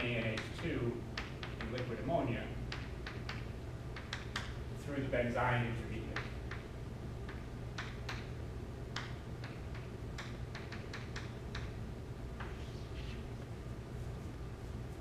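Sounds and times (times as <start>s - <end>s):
low room hum: 0.0s - 15.0s
chalk tapping on blackboard: 1.2s - 2.0s, 2.7s - 4.6s, 9.0s - 11.7s.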